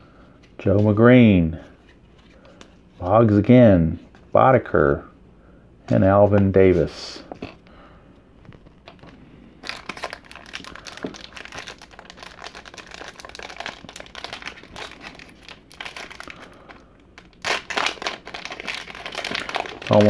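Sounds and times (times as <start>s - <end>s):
card pack wrapper crinkling: 8.8s - 20.0s
wrapper being torn open: 9.6s - 20.0s.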